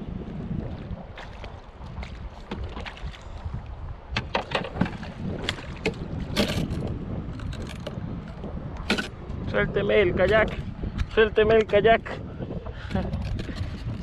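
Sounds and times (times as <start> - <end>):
wind rumbling on microphone: 0.0 - 14.0
water splashes and knocks: 0.7 - 9.4.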